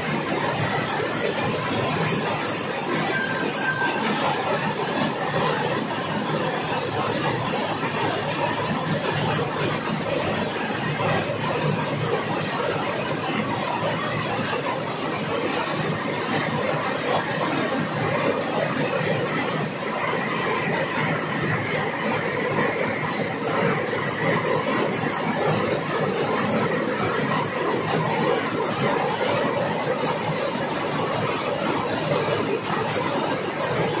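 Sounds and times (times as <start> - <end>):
heavy rain splashing on street: 0.0 - 16.8.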